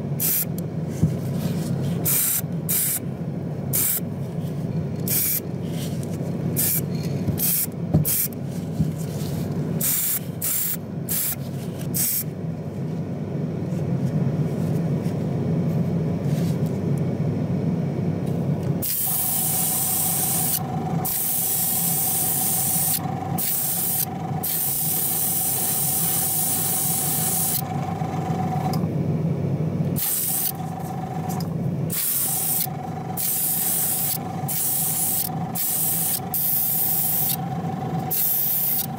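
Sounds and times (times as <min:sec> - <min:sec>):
steady low hum: 0:00.0 - 0:38.9
spray gun hissing: 0:18.8 - 0:27.6, 0:31.9 - 0:37.4, 0:38.1 - 0:38.9.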